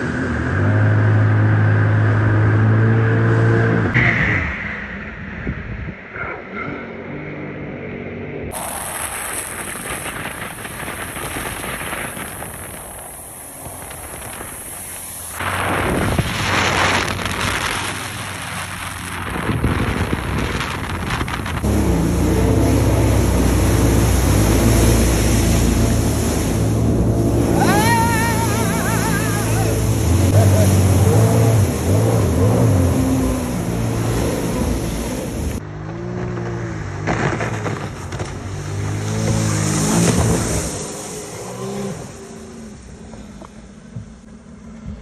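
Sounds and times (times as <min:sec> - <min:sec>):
wind: 0:00.0 - 0:45.0
rush of water spray: 0:08.5 - 0:35.6, 0:37.1 - 0:43.0
watercraft engine running loud: 0:08.5 - 0:35.6.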